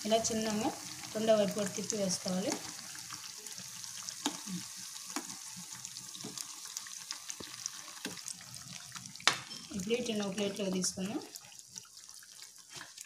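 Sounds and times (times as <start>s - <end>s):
deep-frying oil sizzling: 0.0s - 13.0s.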